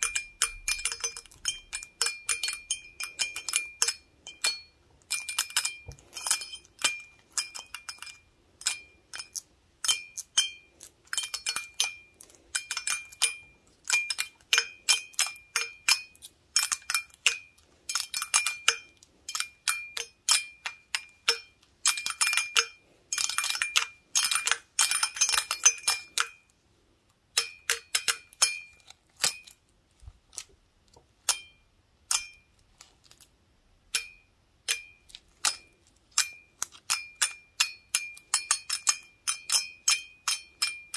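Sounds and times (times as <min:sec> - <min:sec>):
toothpicks tapping a glass stein: 0:33.9 - 0:40.9.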